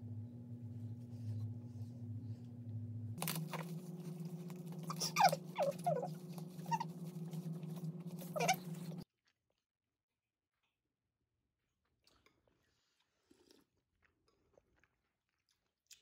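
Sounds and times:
low room hum: 0.0 - 9.1
baby whimpering: 4.8 - 7.4, 8.2 - 9.0.

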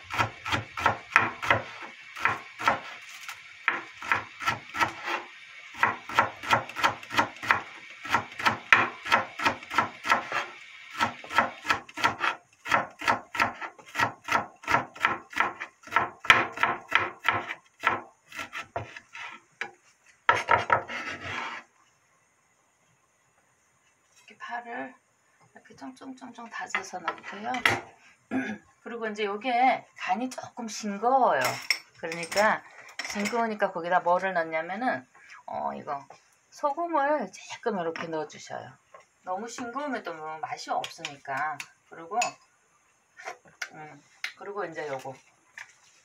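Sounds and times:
blade scraping cutting board: 0.1 - 19.4, 20.3 - 21.7.

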